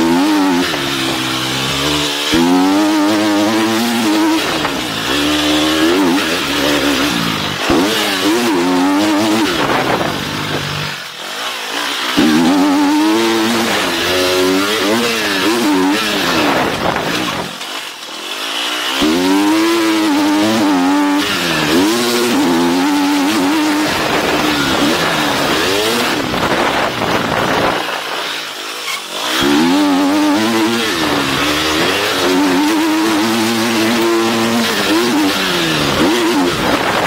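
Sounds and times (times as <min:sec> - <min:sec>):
motocross engine revving: 0:00.0 - 0:37.0
wind rushing on microphone: 0:26.0 - 0:28.0.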